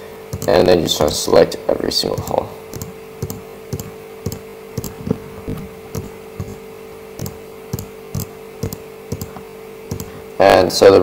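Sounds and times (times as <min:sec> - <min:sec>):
steady hum: 0:00.0 - 0:11.0
computer mouse clicking: 0:00.3 - 0:01.2, 0:02.2 - 0:06.6, 0:07.2 - 0:10.2.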